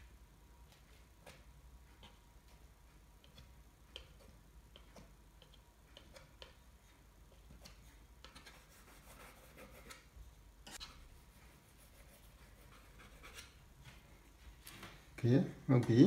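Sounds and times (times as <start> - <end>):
palette knife scraping paint: 3.2 - 13.6.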